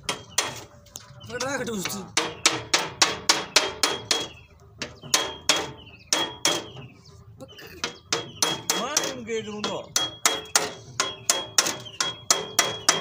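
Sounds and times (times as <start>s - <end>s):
hammer on metal tin: 1.8s - 6.8s, 7.8s - 13.0s.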